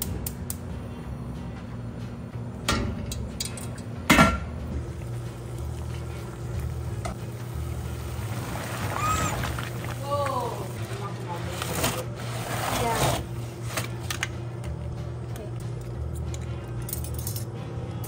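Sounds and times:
water boiling in a pot: 0:04.6 - 0:13.6.

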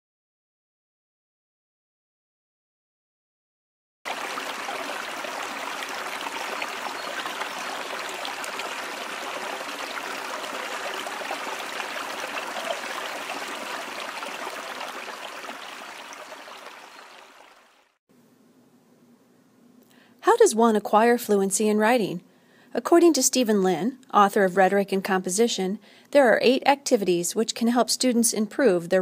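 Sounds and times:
stream of running water: 0:04.1 - 0:18.0.

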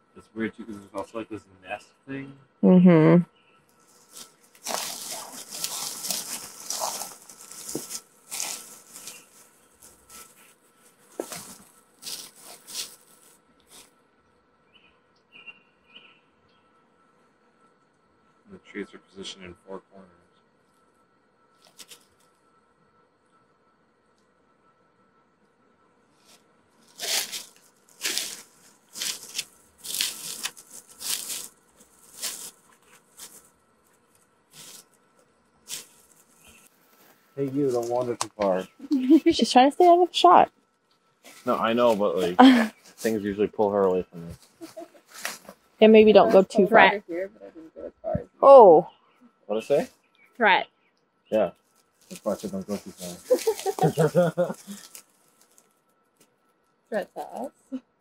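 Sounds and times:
rustling and scuffing: 0:03.9 - 0:13.9, 0:26.2 - 0:33.5, 0:35.7 - 0:38.0, 0:41.2 - 0:41.6, 0:44.3 - 0:46.8, 0:53.1 - 0:55.6
footsteps crunching: 0:04.0 - 0:13.3, 0:26.9 - 0:33.5, 0:35.7 - 0:39.1, 0:44.2 - 0:45.6, 0:52.1 - 0:55.6.

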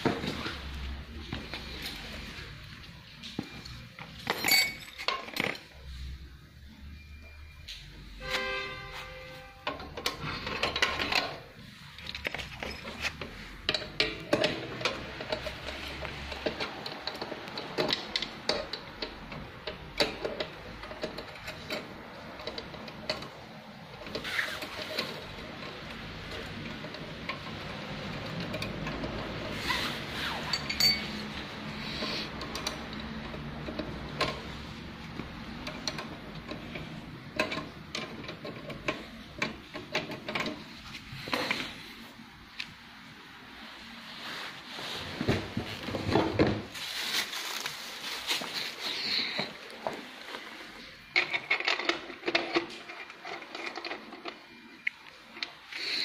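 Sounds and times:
metallic clinks and knocks: 0:03.4 - 0:05.8, 0:30.4 - 0:40.8
handling noise: 0:43.5 - 0:55.6.

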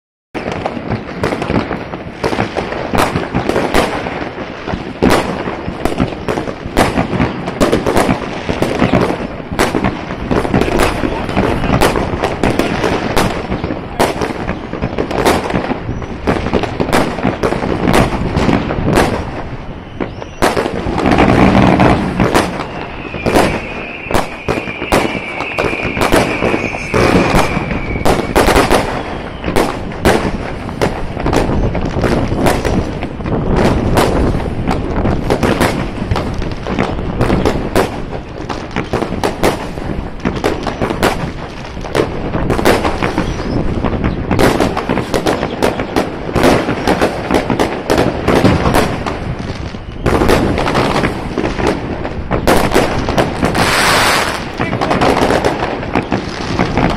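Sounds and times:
fireworks bangs and crackles: 0:00.4 - 0:56.9
high whistle falling in pitch: 0:22.2 - 0:29.6.

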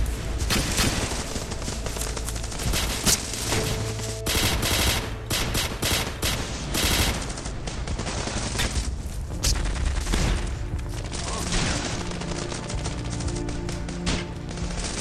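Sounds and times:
automatic rifle fire: 0:04.3 - 0:07.5.

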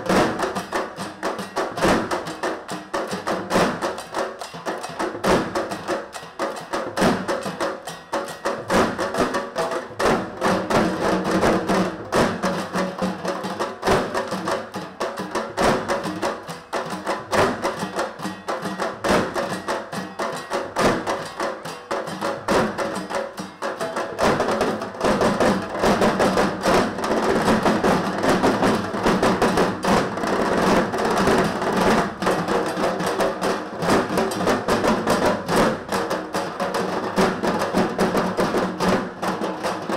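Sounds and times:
barrel drums beaten fast: 0:00.0 - 0:39.9.

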